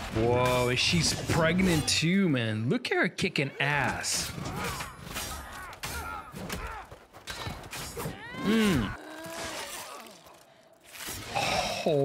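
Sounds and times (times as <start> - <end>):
fighters grunting and crying out: 3.4 - 12.0.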